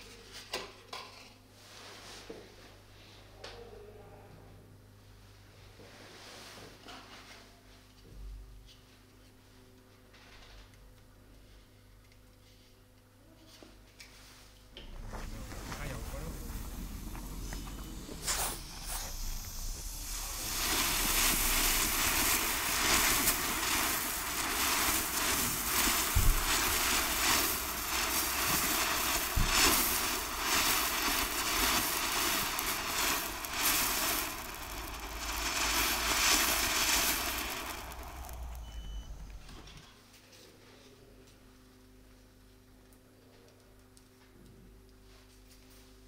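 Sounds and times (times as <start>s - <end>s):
firework fountain hissing and crackling: 14.8s - 39.8s.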